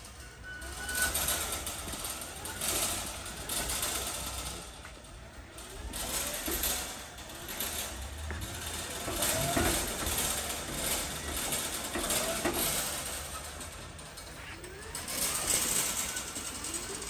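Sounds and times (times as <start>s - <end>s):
clicks and rattles: 0.7s - 17.0s.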